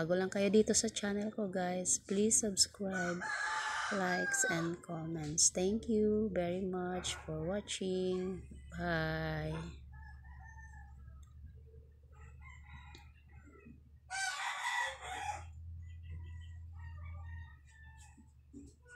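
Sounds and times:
rooster crowing: 2.9 - 4.8, 9.9 - 11.2, 12.3 - 13.4, 14.1 - 15.6
low hum: 15.3 - 17.6.

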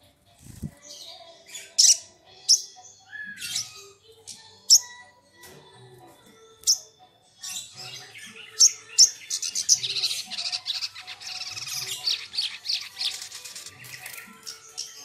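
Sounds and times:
bird chipping and chattering: 7.7 - 15.0.

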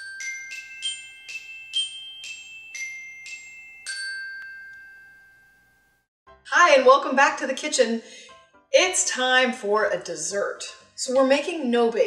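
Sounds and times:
bell-like jingle notes: 0.0 - 5.7.

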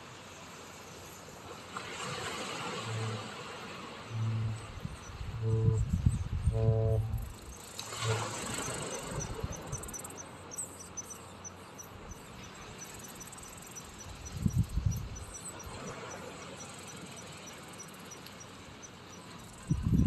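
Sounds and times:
soft outdoor hiss: 0.0 - 20.0
low rumble: 4.1 - 7.3
insect chirping: 4.1 - 20.0.

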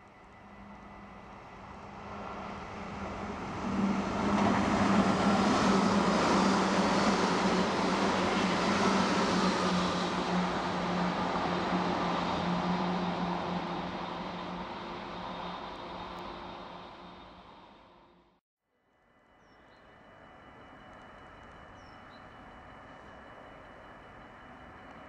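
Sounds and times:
train wheels rumbling on rails: 0.0 - 17.7.

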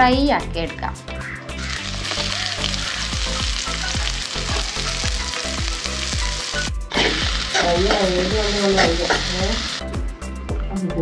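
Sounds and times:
background music: 0.0 - 11.0
onions sizzling in pot: 1.6 - 9.8
spatula scraping pan: 6.9 - 9.7.

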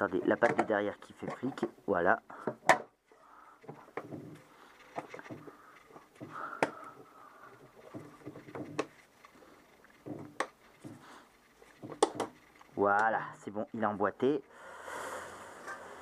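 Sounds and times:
clicks and knocks of air box: 0.4 - 3.0, 7.8 - 9.0, 11.7 - 12.4
gloved hands rubbing on parts: 3.8 - 14.5.

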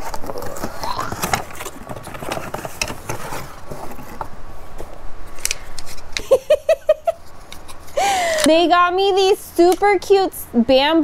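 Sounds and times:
cardboard box rustling: 0.0 - 5.0.

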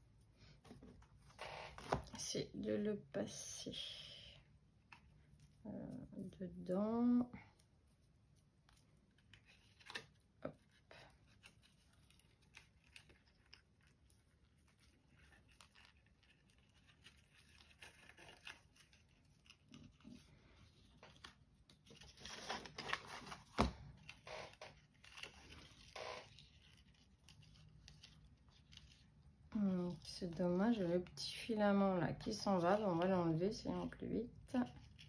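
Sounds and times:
paper pages rustling: 0.6 - 2.2, 11.2 - 31.2.

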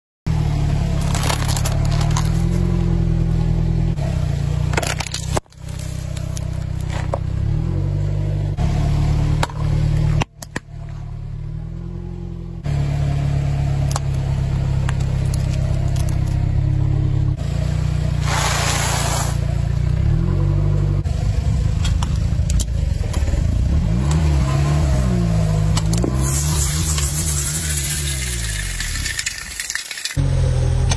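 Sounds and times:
car engine revving: 0.3 - 30.9
plastic crackling and snapping: 1.0 - 2.7
aerosol can hissing: 18.2 - 19.5.

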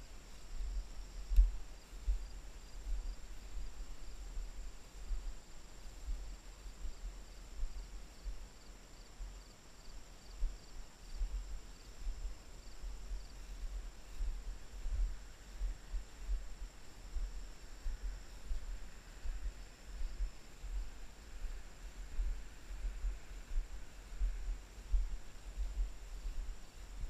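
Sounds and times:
faint insects chirping: 0.0 - 27.0
camera thumps and rumble: 0.5 - 3.8, 13.2 - 27.0.

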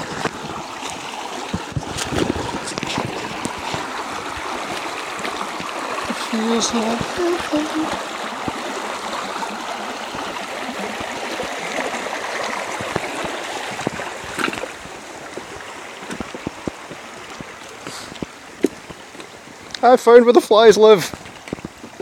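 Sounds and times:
river water rushing over rocks: 0.0 - 22.0
footsteps on stones: 0.1 - 8.6, 12.3 - 19.4.

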